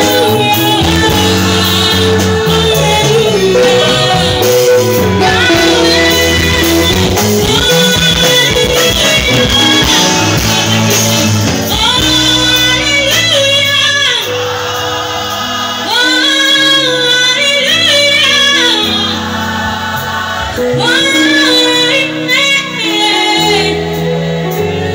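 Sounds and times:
woman singing lead: 0.0 - 14.7, 15.8 - 19.4, 20.5 - 24.9
band with drums: 0.0 - 16.4
backing voices singing: 0.0 - 24.0.

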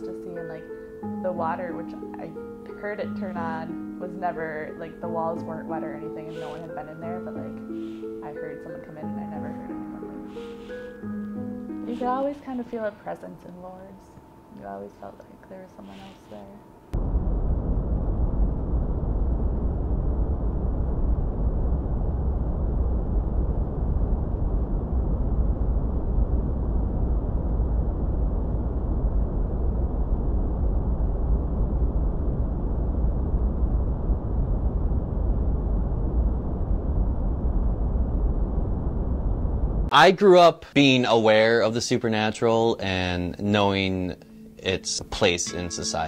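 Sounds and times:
low rumbling wind: 16.6 - 39.9.

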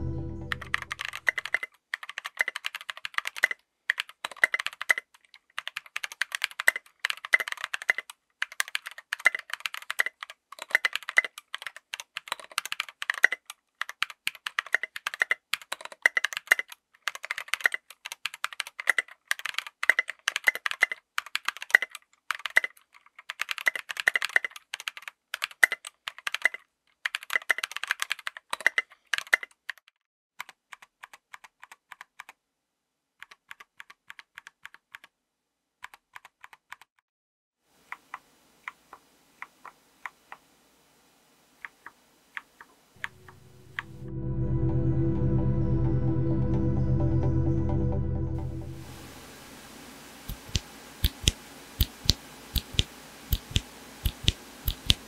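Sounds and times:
fast mechanical keyboard typing: 0.5 - 32.4, 33.2 - 35.1, 35.8 - 36.9, 50.3 - 55.0.

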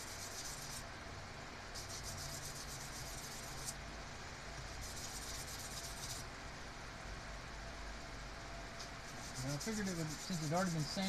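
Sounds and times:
metal rubbing on sandpaper: 0.0 - 0.8, 1.8 - 3.8, 4.8 - 6.2, 9.1 - 11.0.

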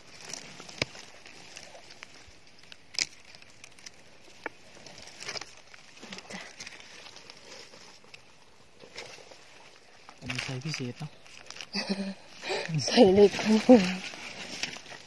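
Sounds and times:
dry leaves crackling and rustling: 0.0 - 15.0.

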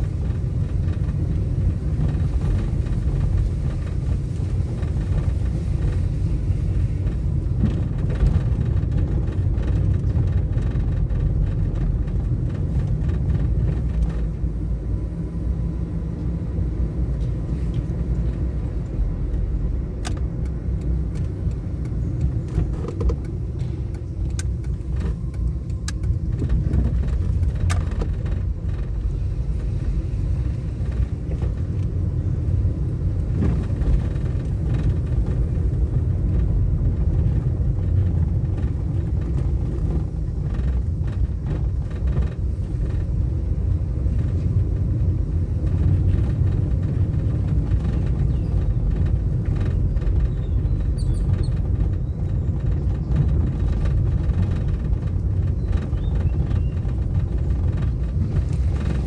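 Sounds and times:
car interior road rumble: 0.0 - 59.0
light clicks and rattles: 17.2 - 59.0.

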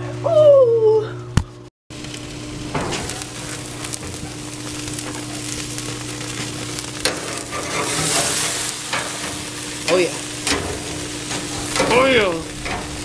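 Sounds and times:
steaks sizzling on a grill: 1.9 - 13.0
metal spatula sliding under steak: 7.2 - 9.2.

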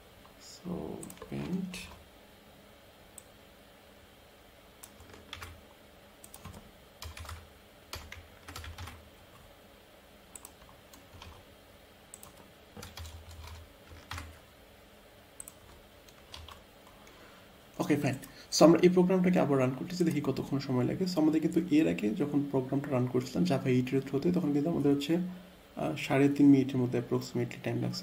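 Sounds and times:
typing on computer keyboard: 4.8 - 5.6, 6.2 - 9.0, 10.4 - 11.4, 12.2 - 14.4, 15.4 - 16.6.

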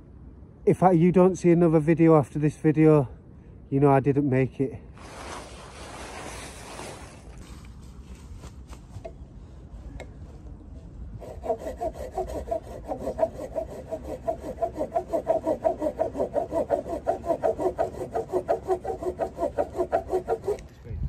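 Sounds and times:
hand saw cutting branch: 11.2 - 20.7.

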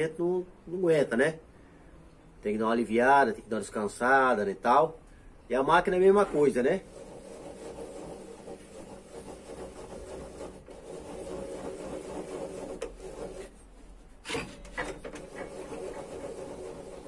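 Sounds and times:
wooden board sliding on metal table: 6.0 - 17.0.

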